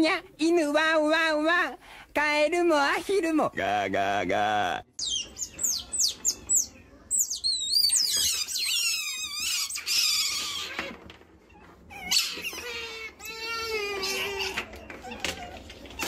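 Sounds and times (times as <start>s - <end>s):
otters squeaking: 5.0s - 16.0s.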